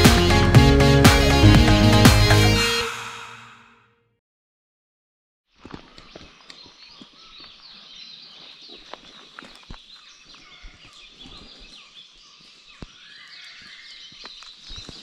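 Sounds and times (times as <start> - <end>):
birds chirping and whistling: 6.0 - 15.0.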